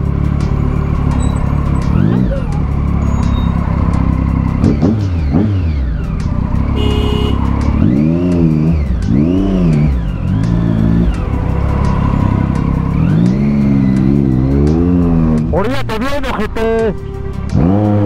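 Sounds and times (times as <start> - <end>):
vehicle engine revving: 0.0 - 18.0
brief horn tone: 6.8 - 7.4.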